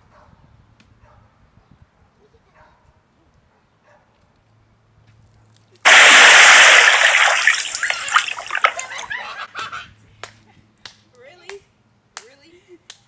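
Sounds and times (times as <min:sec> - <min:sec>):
water splashing and pouring: 0:05.9 - 0:09.2.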